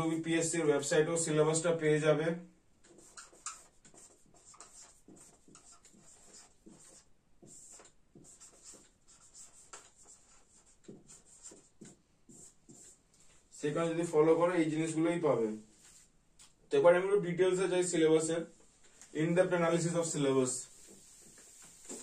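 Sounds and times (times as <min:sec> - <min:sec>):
marker squeaking on whiteboard: 0:02.8 - 0:13.0, 0:20.6 - 0:22.0.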